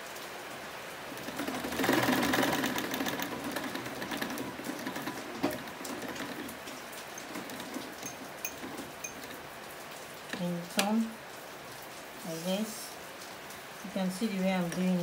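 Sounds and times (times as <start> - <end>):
sewing machine running fast: 1.1 - 9.3.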